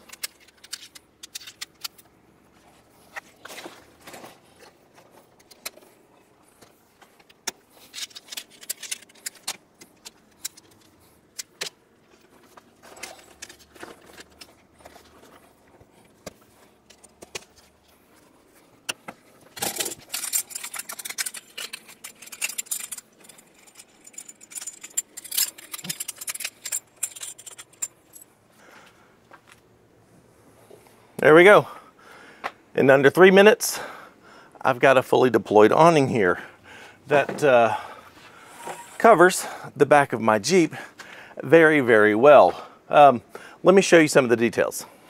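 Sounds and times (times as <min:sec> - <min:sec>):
metal poles clicking: 0:18.8 - 0:28.2.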